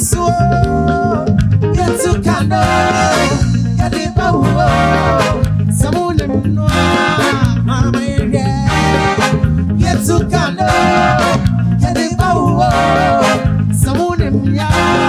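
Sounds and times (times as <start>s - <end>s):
live band music: 0.0s - 15.0s.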